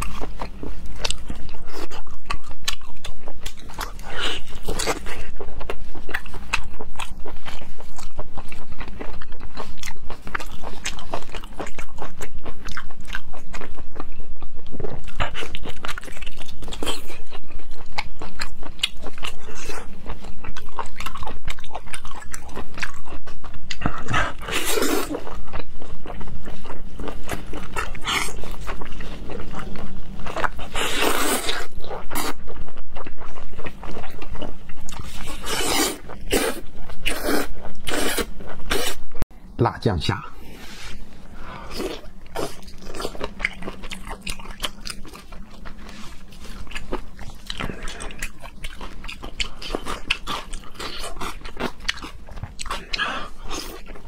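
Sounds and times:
wet chewing: 0.0s - 39.1s, 41.4s - 54.0s
loud slurps: 35.2s - 39.0s.

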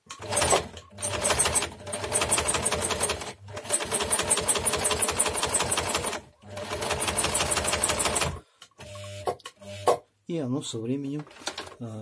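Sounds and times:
sewing machine clattering: 0.1s - 8.4s, 11.2s - 11.9s.

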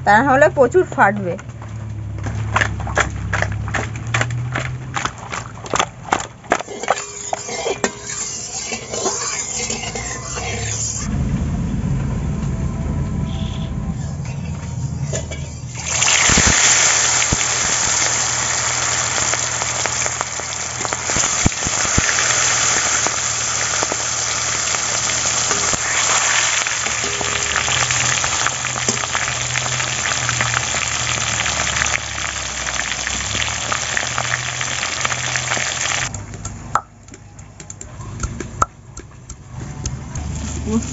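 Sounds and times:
oil crackling and spattering: 1.2s - 7.5s, 15.8s - 36.4s
fish frying in hot oil: 15.8s - 36.2s.

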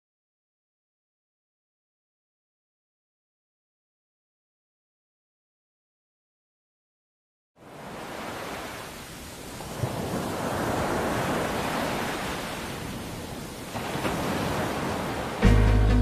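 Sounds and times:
ocean wave washing in: 7.6s - 16.0s.

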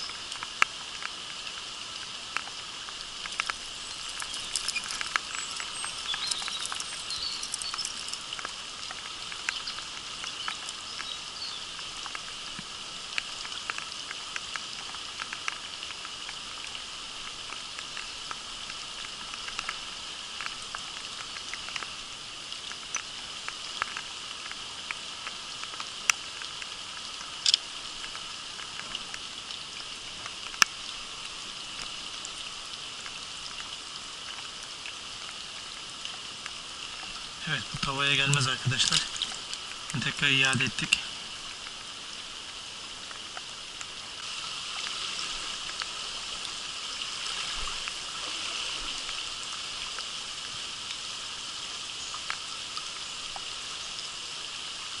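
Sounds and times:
rain pattering: 0.0s - 55.0s
shallow stream rushing over rocks: 0.0s - 55.0s
drops ticking: 3.2s - 11.2s, 37.5s - 41.1s
sharp clicks: 27.4s - 27.7s.

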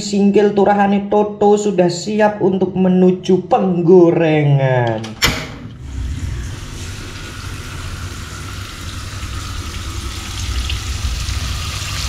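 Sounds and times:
low steady hum: 5.2s - 12.0s
fish sizzling in hot oil: 6.6s - 12.0s.

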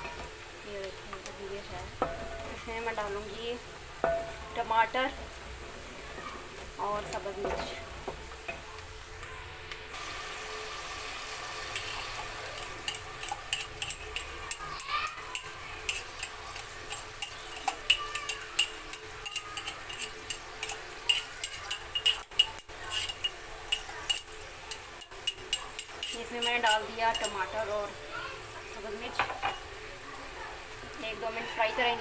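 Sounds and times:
vegetables sizzling in oil: 0.0s - 32.0s
metal spoon clinking in glass jar: 12.6s - 14.7s, 15.3s - 27.4s.

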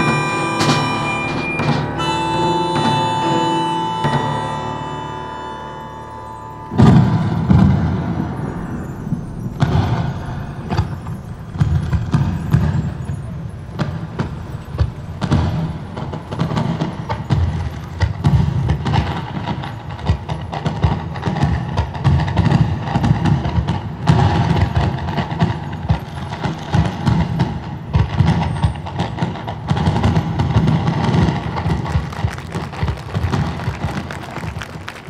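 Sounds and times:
music: 0.0s - 35.0s
low thumping: 5.2s - 18.7s.

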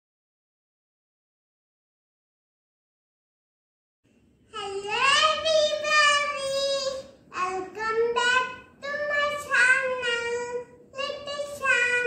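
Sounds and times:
girl singing unaccompanied: 4.5s - 12.0s.

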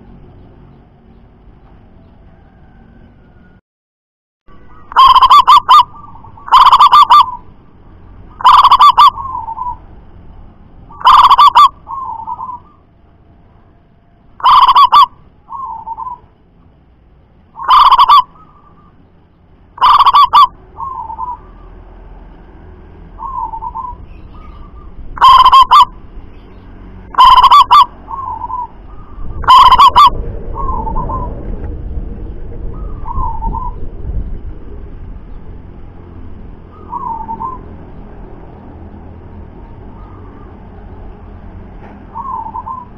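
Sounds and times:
dove trilled cooing: 4.7s - 7.4s, 8.4s - 9.8s, 10.9s - 12.8s, 14.4s - 16.2s, 17.6s - 19.0s, 19.8s - 21.7s, 23.2s - 25.9s, 27.1s - 31.4s, 32.7s - 33.8s, 36.7s - 37.7s, 39.9s - 40.9s, 42.1s - 42.9s.

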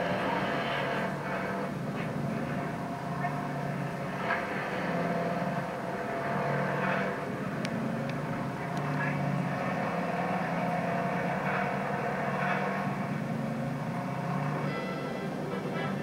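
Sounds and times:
television drone: 0.0s - 16.0s
person talking on television: 15.3s - 16.0s.

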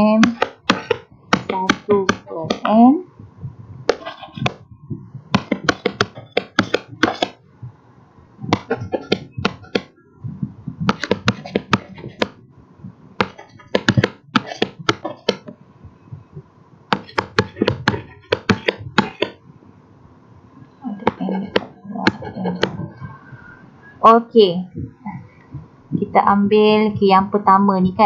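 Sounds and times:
stylus tapping on tablet screen: 0.0s - 2.8s, 3.9s - 4.6s, 5.3s - 7.4s, 8.5s - 9.9s, 10.9s - 12.4s, 13.2s - 15.5s, 16.9s - 19.4s, 21.1s - 22.8s.

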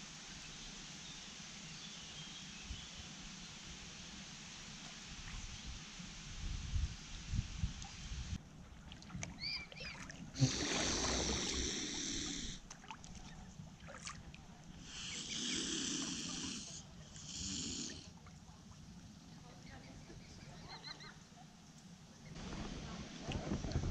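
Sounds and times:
swan hissing: 9.4s - 12.6s, 14.8s - 18.1s.

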